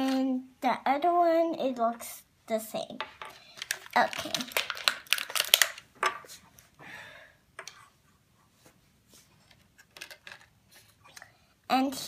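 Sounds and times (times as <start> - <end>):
plastic accessories clicking: 3.0 - 6.3, 9.8 - 10.5
plastic bag crinkling: 3.4 - 5.9.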